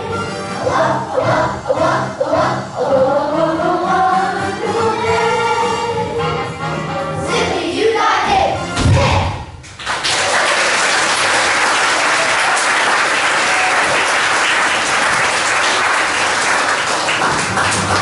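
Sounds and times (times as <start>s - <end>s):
song: 0.4s - 5.7s
audience applauding: 9.8s - 18.0s.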